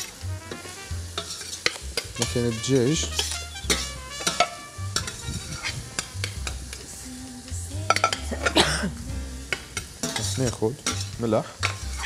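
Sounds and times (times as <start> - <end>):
light sizzle: 0.0 - 12.0
metal spoon scraping pot: 0.5 - 6.9, 9.5 - 12.0.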